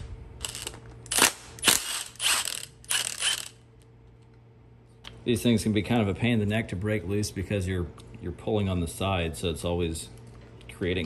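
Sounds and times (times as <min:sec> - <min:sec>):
impact wrench bursts: 0:00.4 - 0:03.6.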